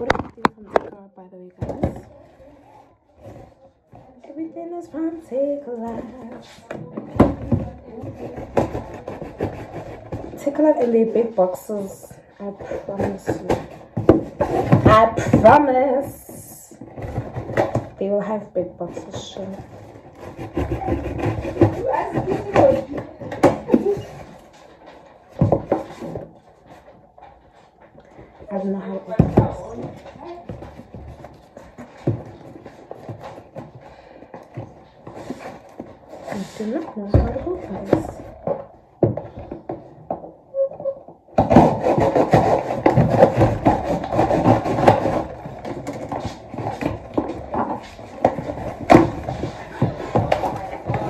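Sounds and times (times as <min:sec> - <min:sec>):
box knocking: 0:01.6 - 0:02.2, 0:05.0 - 0:27.0, 0:29.0 - 0:40.4, 0:41.3 - 0:51.0
cardboard rustling and scraping: 0:01.6 - 0:51.0
knife sawing through cardboard: 0:08.2 - 0:10.6, 0:19.4 - 0:24.4, 0:41.4 - 0:51.0.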